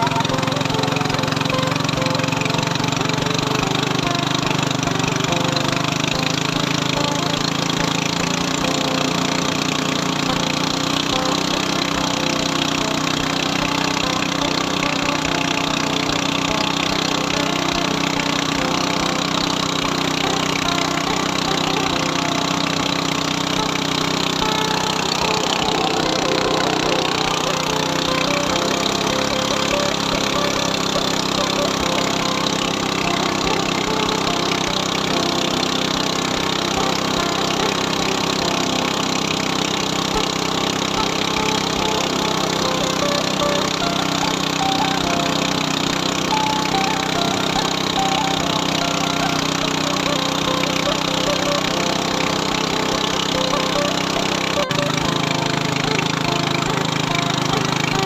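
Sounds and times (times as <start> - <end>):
boat motor running: 0.0 - 58.0.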